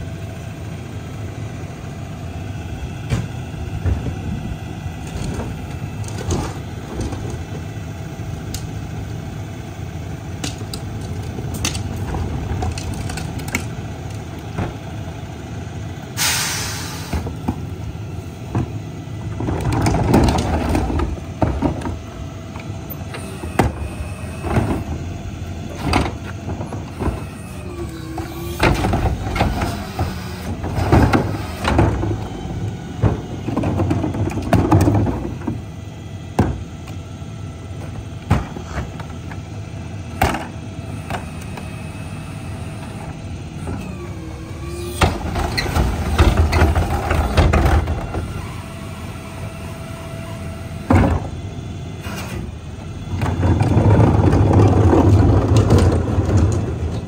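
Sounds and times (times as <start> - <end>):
garbage truck idling: 0.0 - 57.0
garbage truck packer running: 0.0 - 57.0
hydraulic whine: 19.8 - 34.5, 40.1 - 57.0
trash carts banging against tipper: 23.1 - 35.7, 43.6 - 49.2, 53.1 - 57.0.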